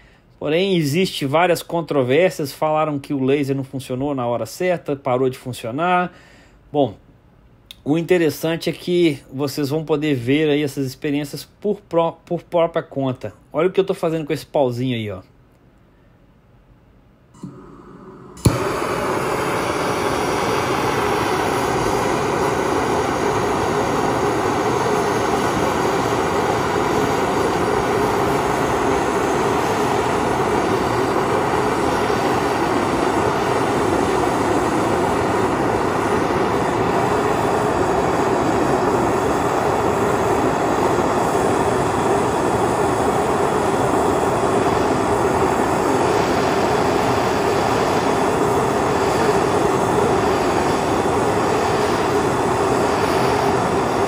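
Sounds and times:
gas torch flame hissing: 17.4 - 54.0.

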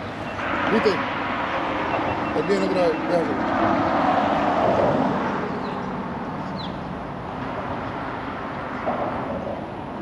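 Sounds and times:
outdoor background rush: 0.0 - 10.0.

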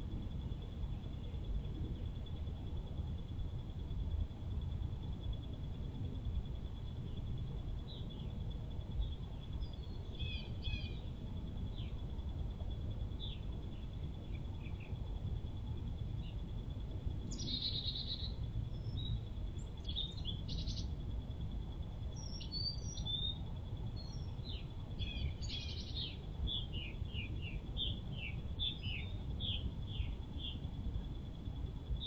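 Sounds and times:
faint high whine: 0.0 - 32.0
steady low rumble: 0.0 - 32.0
small birds chirping: 6.7 - 32.0.

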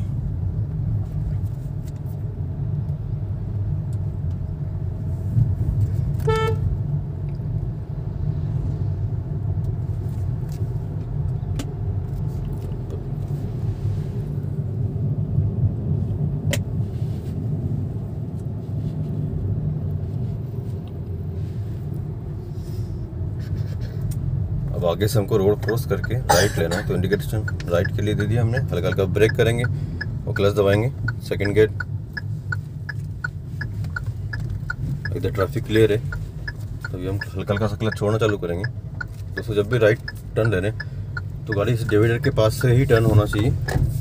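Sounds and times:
car engine and road rumble: 0.0 - 44.0
car horn toot: 6.2 - 6.7.

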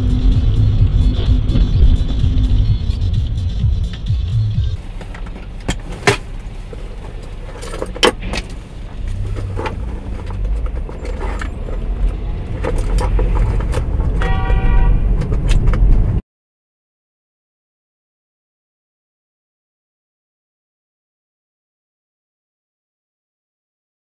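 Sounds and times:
steady pitched tone: 0.0 - 5.6
engine and road rumble: 0.0 - 16.2.

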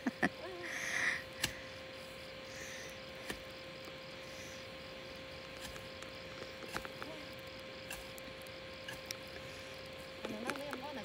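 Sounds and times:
insects trilling: 0.0 - 11.0
hoe chopping into soil: 3.2 - 3.5, 5.5 - 7.2, 7.8 - 8.2.

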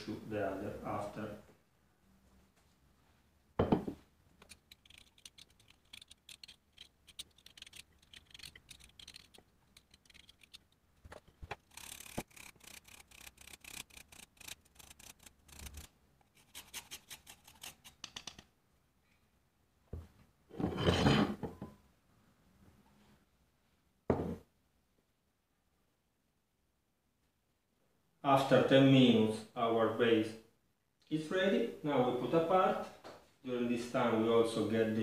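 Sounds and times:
plate knocking on table: 3.6 - 4.0, 24.1 - 24.4
lime zest grating: 4.4 - 18.4.

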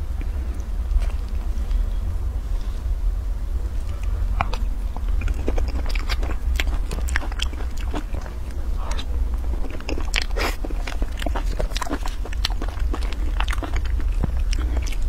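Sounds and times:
steady low hum: 0.0 - 15.0
chewing with wet mouth clicks: 3.8 - 15.0.

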